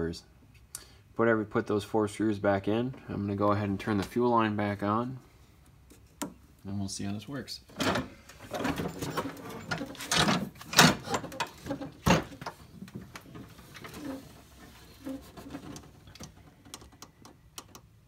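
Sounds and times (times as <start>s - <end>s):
rustling: 8.2s - 17.0s.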